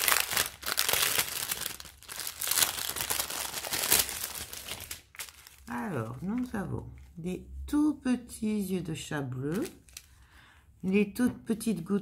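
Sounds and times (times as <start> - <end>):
plastic packaging crinkling: 0.0 - 6.6, 9.5 - 10.2.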